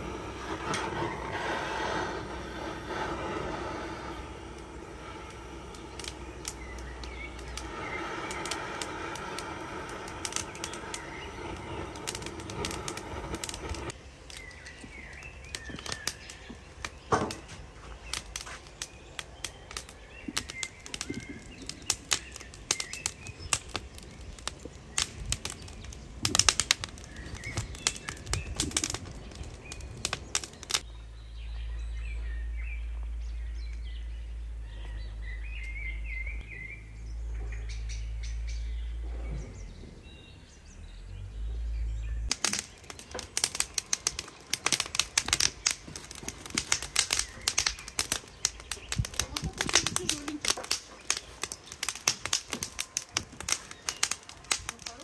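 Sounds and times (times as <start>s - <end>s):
wind rumble on microphone: 0.0s - 14.0s, 20.1s - 30.8s, 46.4s - 50.5s
wood fire crackling and popping: 0.0s - 30.9s, 42.3s - 55.0s
birds chirping: 0.0s - 55.0s.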